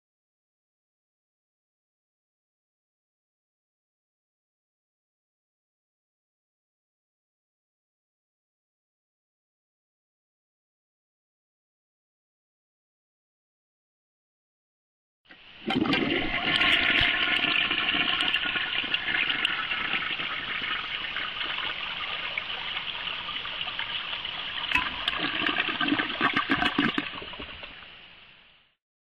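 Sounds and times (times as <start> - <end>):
toilet flushing: 15.3 - 27.8.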